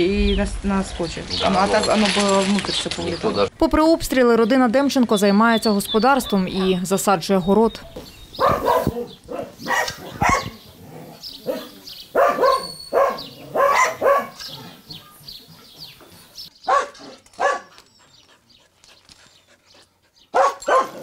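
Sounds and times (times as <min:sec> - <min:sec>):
dog barking: 0:07.8 - 0:10.6, 0:11.4 - 0:14.8, 0:16.6 - 0:17.7, 0:20.3 - 0:21.0.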